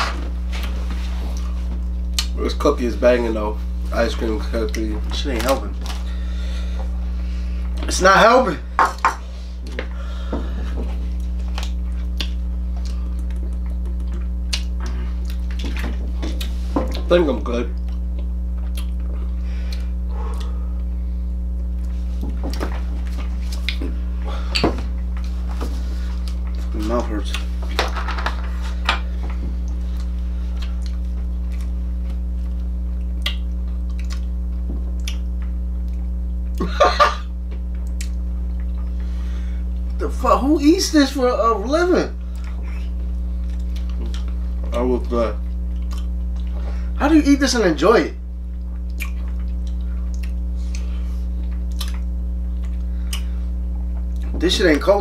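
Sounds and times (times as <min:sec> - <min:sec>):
low electrical hum: 0:00.0 - 0:55.0
person chewing: 0:10.5 - 0:16.7, 0:17.8 - 0:26.7, 0:29.6 - 0:36.7, 0:37.6 - 0:40.0, 0:42.2 - 0:44.5, 0:45.4 - 0:46.6, 0:48.5 - 0:54.3.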